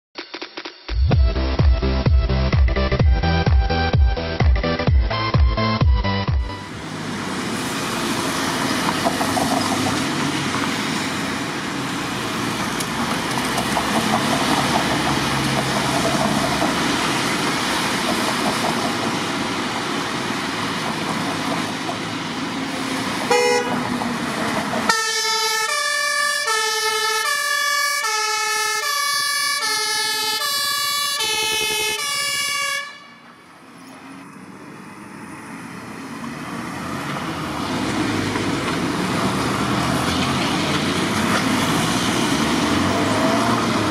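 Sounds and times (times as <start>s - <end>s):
street traffic: 0.4s - 43.9s
two-tone fire engine siren: 23.2s - 24.1s, 24.7s - 33.6s.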